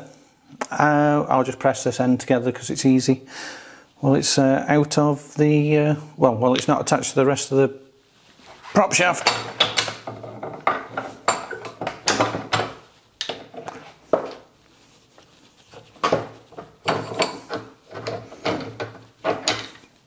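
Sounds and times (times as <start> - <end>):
metal clunks and knocks: 9.2 - 14.4, 16.0 - 19.9.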